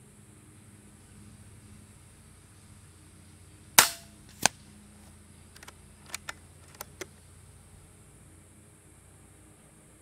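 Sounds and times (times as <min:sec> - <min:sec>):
air rifle shot: 0:03.8 - 0:04.6
quieter crack: 0:03.8 - 0:04.6.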